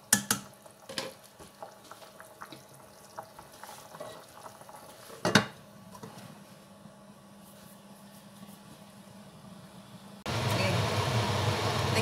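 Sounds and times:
boiling sauce pops and crackles: 0.0s - 5.6s
sauce simmering in a pot: 0.0s - 6.0s.

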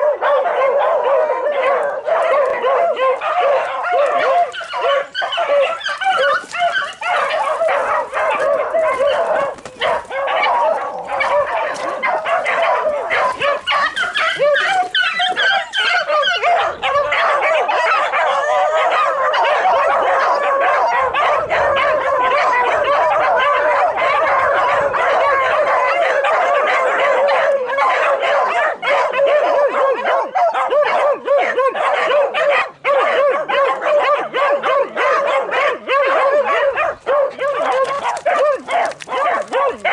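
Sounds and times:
pack of dogs baying: 0.0s - 39.9s.

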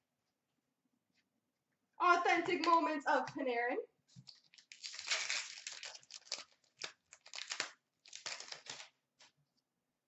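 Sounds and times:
foil pack and cards crinkling: 4.1s - 9.4s.

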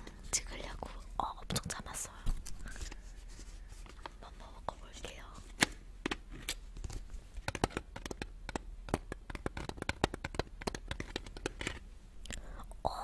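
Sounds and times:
fingernails clicking on plastic cup: 7.4s - 11.8s.

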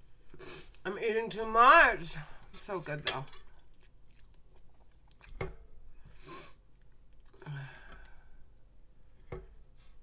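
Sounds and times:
sniff: 0.4s - 0.8s, 6.2s - 6.6s
close chewing of soft food: 3.2s - 5.5s, 6.5s - 9.2s.

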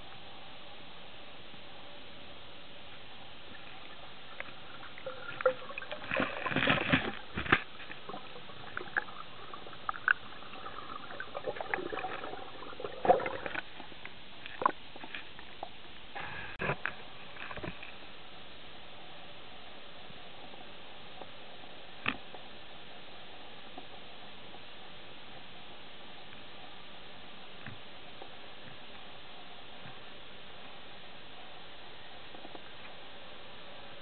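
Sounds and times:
steady hiss: 0.0s - 34.0s
air bubbles gurgling underwater: 3.8s - 7.3s, 8.0s - 13.7s.

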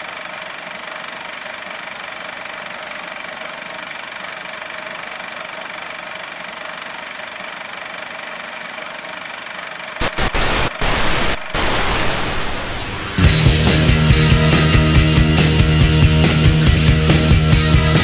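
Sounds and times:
even hiss: 10.0s - 13.2s
thin high whine: 10.0s - 13.6s
steady hum: 10.0s - 14.9s.

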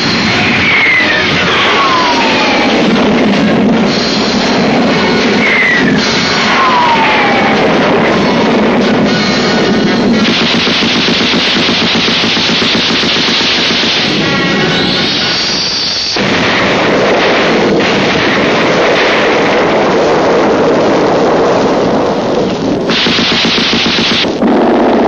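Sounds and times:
falling whistling tones: 0.1s - 2.7s, 5.2s - 7.6s, 14.5s - 16.2s
machine-gun fire: 10.2s - 15.1s, 16.2s - 21.0s, 22.9s - 25.0s.

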